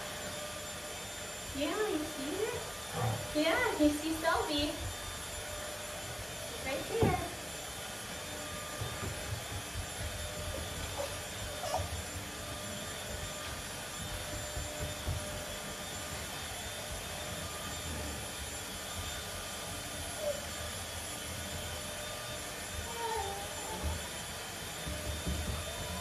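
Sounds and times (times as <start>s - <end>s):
paws thumping on wooden floor: 6.8s - 18.1s, 23.5s - 26.0s.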